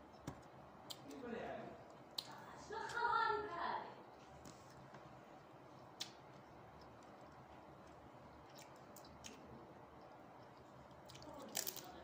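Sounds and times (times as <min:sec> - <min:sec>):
person chewing: 0:04.7 - 0:11.5.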